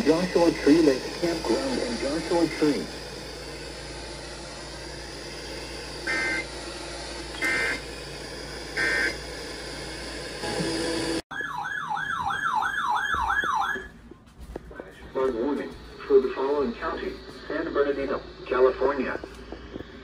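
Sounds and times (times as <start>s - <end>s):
screeching data bursts: 6.0s - 6.7s, 7.3s - 7.9s.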